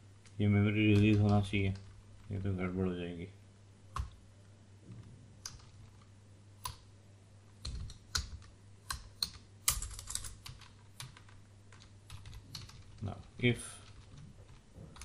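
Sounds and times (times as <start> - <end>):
computer keyboard keystrokes: 3.9 - 4.2, 5.4 - 6.8, 7.6 - 13.2.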